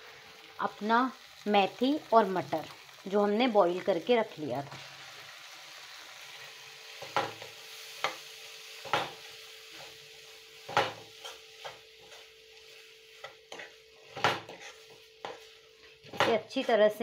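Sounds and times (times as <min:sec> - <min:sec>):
faint sizzle: 0:00.0 - 0:17.0
spoon scraping pan: 0:10.6 - 0:16.8.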